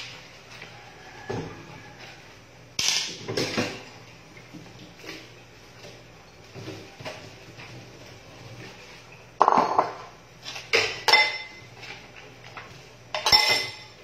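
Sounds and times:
dishes clinking in a sink: 9.4 - 14.0.

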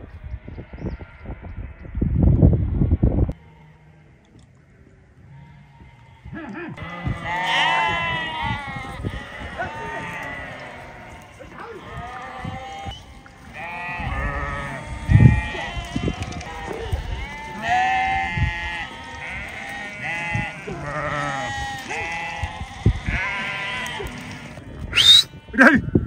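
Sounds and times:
sheep bleating: 5.3 - 25.9.

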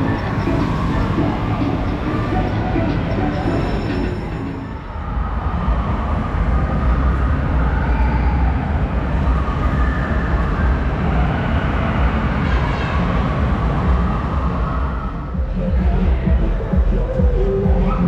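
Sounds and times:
amusement arcade game machines din: 0.0 - 7.7.

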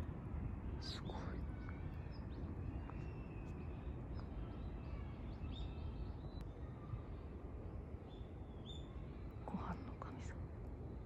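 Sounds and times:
low outdoor rumble: 0.0 - 11.0.

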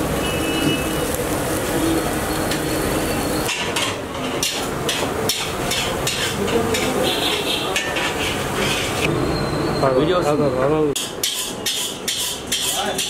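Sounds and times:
frying noise: 0.0 - 9.4, 10.8 - 13.0
metal spatula scraping iron pan: 3.5 - 9.1, 11.0 - 13.0.

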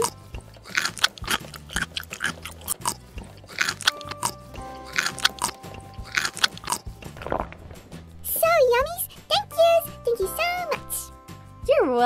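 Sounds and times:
crunchy munching: 0.0 - 8.2
light background music: 0.0 - 12.0.

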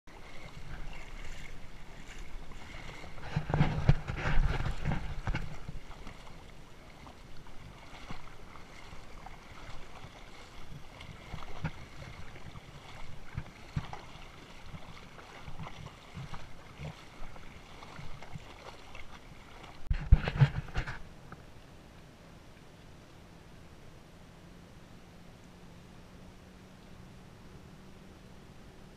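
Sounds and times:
seawater splashing while wading: 0.1 - 21.7.

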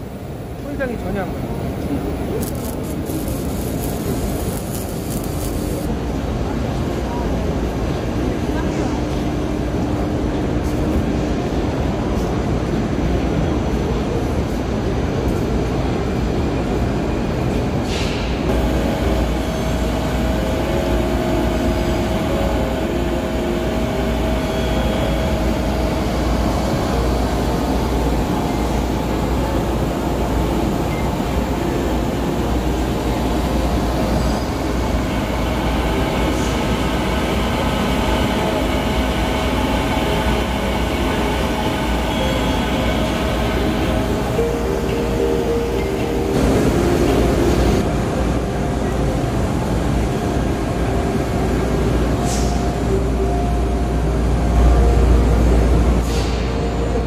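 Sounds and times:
machinery rumbling and hissing: 0.0 - 57.0.

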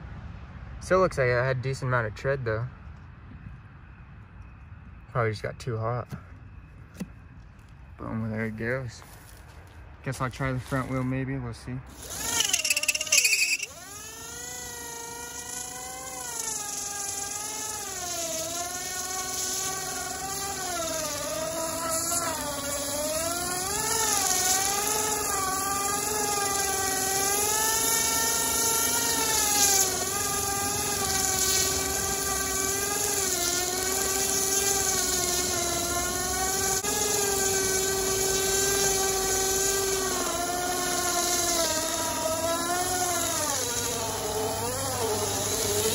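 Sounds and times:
electric hub motor whining: 11.9 - 45.9
hiss of tire scrubbing: 16.4 - 45.9.

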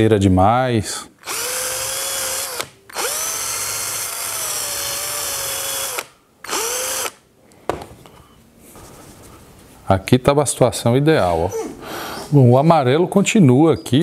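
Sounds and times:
drill motor whining: 1.2 - 7.2.

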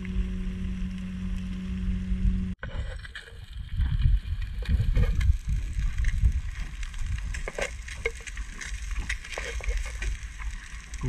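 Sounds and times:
wind rumble on microphone: 0.0 - 10.6.

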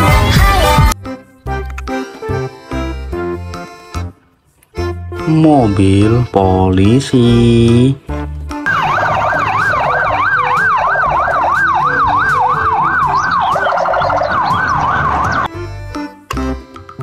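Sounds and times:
police siren yelping: 8.6 - 15.5.

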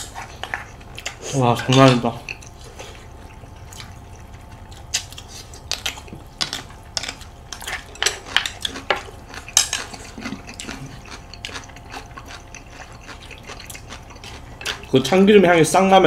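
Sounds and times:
wet chewing sounds: 0.0 - 15.3.

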